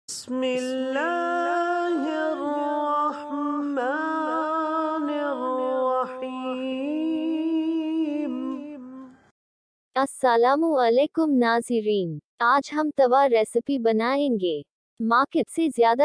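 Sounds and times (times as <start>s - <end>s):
chant-like singing: 0.1s - 9.1s.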